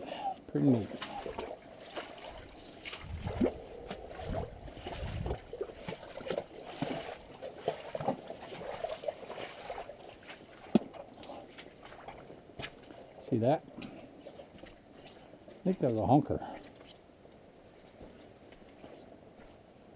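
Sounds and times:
footsteps over mud and sticks: 0.4s - 19.9s
wind buffeting microphone: 2.4s - 6.3s.

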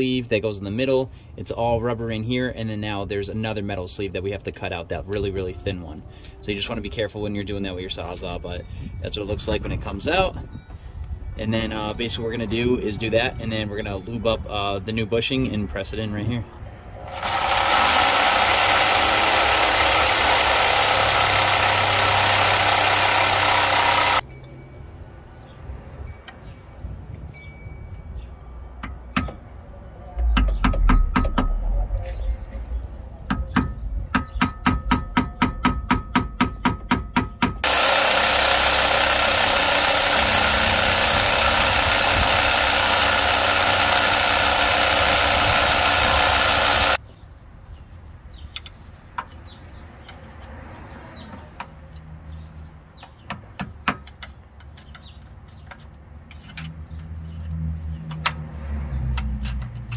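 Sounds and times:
reciprocating saw cutting metal: 17.0s - 24.2s, 37.6s - 47.0s.

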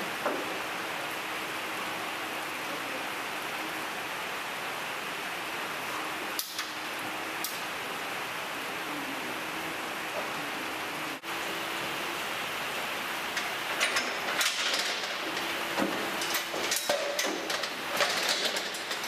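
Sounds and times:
steady hiss: 0.0s - 19.0s
metal gate knocking and clattering: 13.4s - 19.0s.

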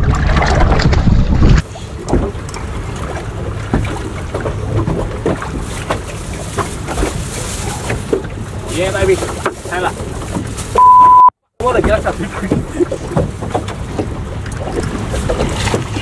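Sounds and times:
wind rumbling on microphone: 0.0s - 10.8s.

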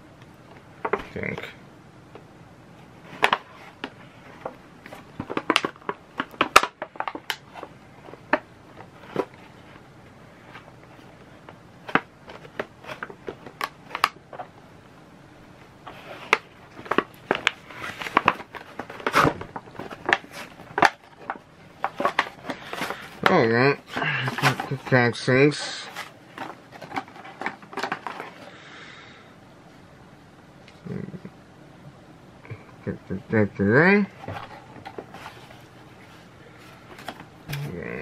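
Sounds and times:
packaging rustling: 3.0s - 9.8s, 10.4s - 14.6s, 15.8s - 25.2s, 25.8s - 28.5s, 34.2s - 38.0s
hands handling packaging: 3.0s - 14.6s, 15.8s - 28.6s, 34.2s - 38.0s.

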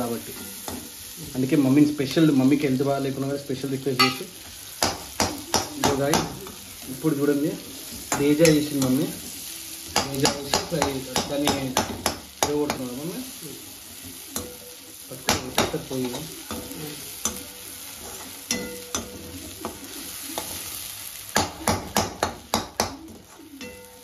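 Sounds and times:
food sizzling in oil: 0.0s - 24.0s
metal spoon scraping a pan: 0.2s - 1.2s, 14.0s - 20.7s, 23.1s - 24.0s.

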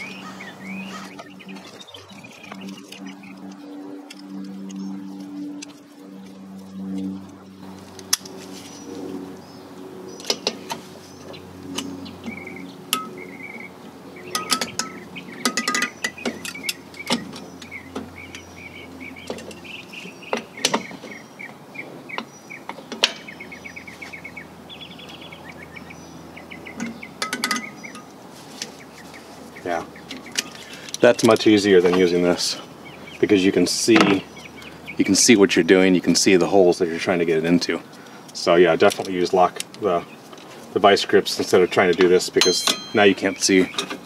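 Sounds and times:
faint birds chirping: 0.0s - 44.0s
metallic clicks of pliers on spring: 41.9s - 44.0s.

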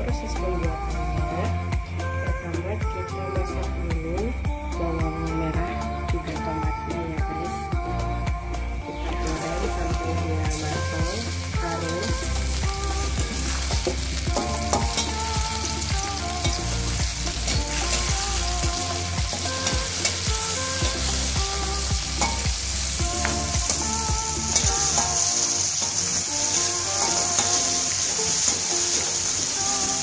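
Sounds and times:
vegetables sizzling in hot oil: 9.0s - 30.0s
metal spoon scraping a pan: 13.3s - 18.2s, 22.2s - 22.9s, 23.7s - 29.3s.

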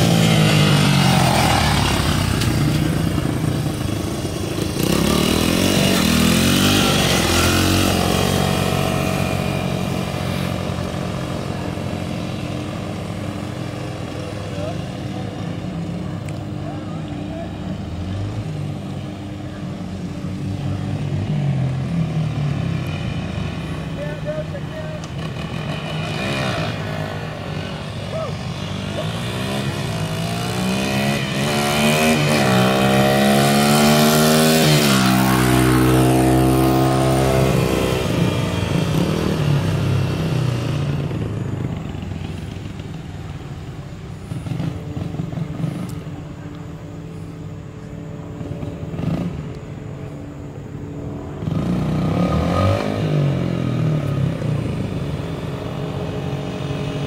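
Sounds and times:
dirt bike engine revving: 0.0s - 15.4s, 23.0s - 42.0s, 51.3s - 57.0s.

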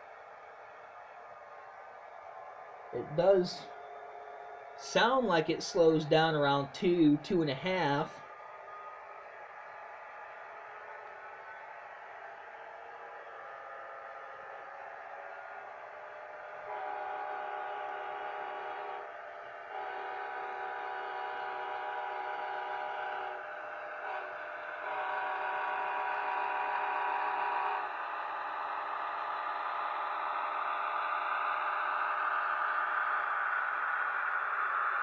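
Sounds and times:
diesel engine sound: 13.8s - 35.0s
model train horn: 16.6s - 19.1s, 19.7s - 28.3s.

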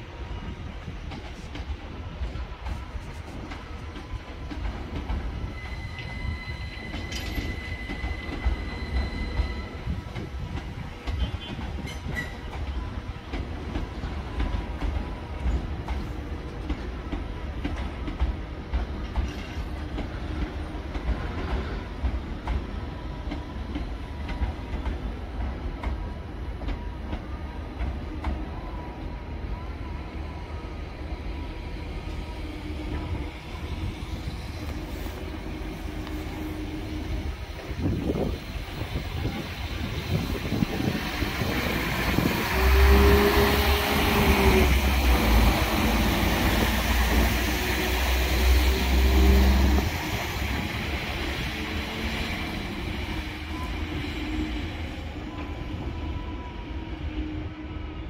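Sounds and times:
train wheels rumbling on rail: 0.0s - 58.0s
high wheel squeal: 5.4s - 10.0s.

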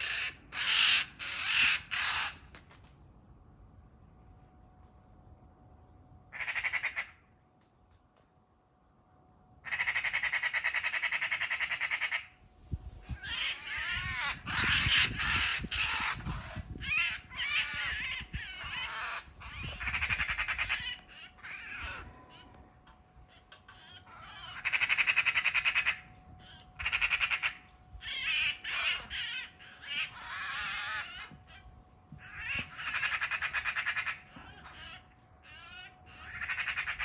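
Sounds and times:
magpie squawks and screeches: 0.0s - 2.4s, 6.3s - 7.2s, 9.7s - 12.3s, 13.0s - 22.5s, 23.3s - 37.0s
magpie rattling chatter: 0.0s - 2.5s, 13.0s - 22.0s, 23.3s - 26.0s, 26.8s - 31.6s, 32.2s - 37.0s.

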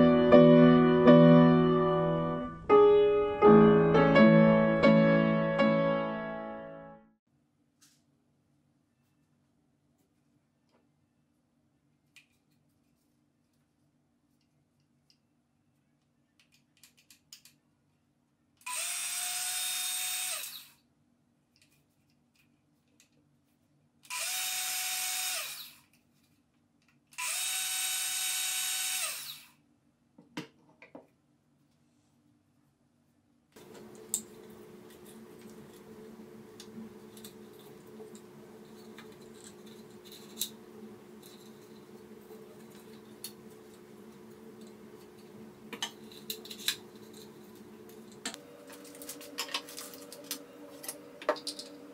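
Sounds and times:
saw blade winding down: 18.7s - 20.8s, 24.1s - 25.8s, 27.2s - 29.5s
circular saw whine: 33.6s - 51.9s
steady low hum: 33.6s - 51.9s.

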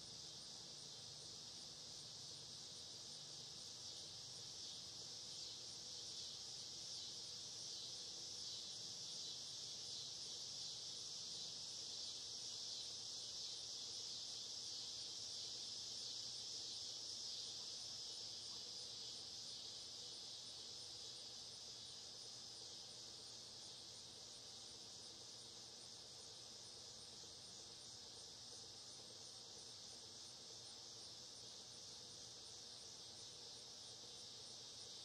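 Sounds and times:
insect chorus: 0.0s - 35.0s.

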